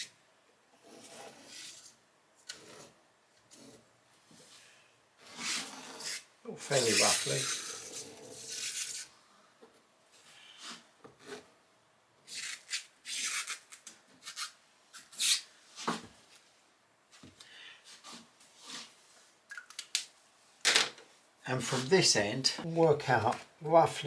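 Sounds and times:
pen scratching on vinyl: 5.3 - 9.1.

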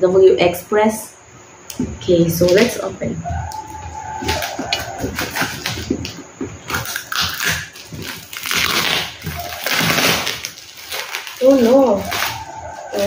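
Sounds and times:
plastic wrapping crinkling: 2.4 - 13.0
scissors cutting plastic: 6.7 - 13.0.

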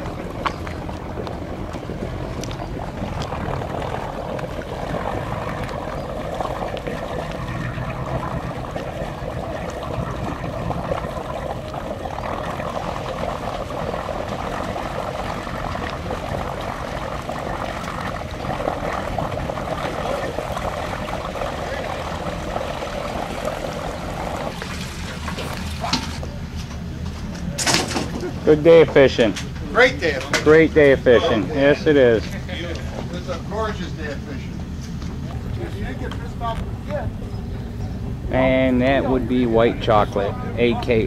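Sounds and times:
water churning and sloshing: 0.0 - 26.6
boat engine running: 0.0 - 41.0.

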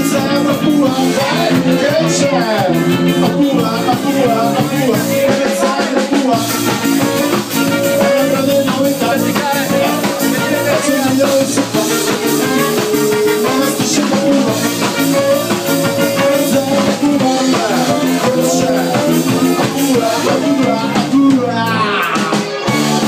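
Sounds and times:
drum kit beat: 0.0 - 23.0
electric guitar: 0.0 - 23.0
live band playing instrumental: 0.0 - 23.0.

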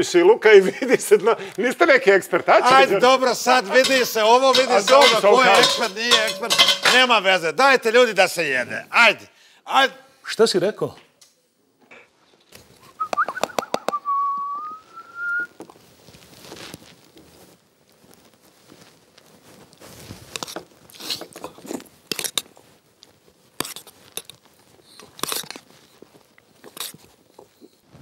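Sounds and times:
spoons clinking and scraping: 2.7 - 7.2
chewing: 20.4 - 27.8.

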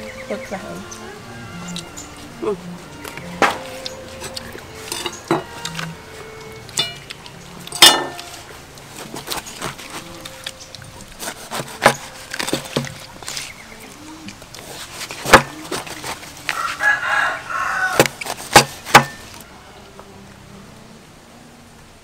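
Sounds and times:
rooster crowing: 0.8 - 7.8, 16.2 - 18.1
cleaver chopping on wooden table: 11.2 - 13.0, 18.0 - 19.2.

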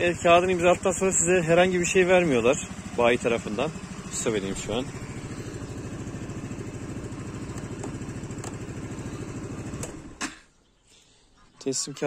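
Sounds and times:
scooter engine idling: 0.0 - 10.4
engine shut-off click: 7.4 - 8.8, 9.4 - 10.5.

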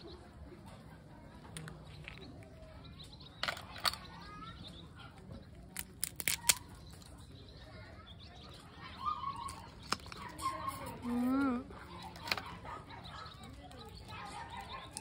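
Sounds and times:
birds chirping faintly: 0.0 - 15.0
crab shell cracking: 5.6 - 6.8.

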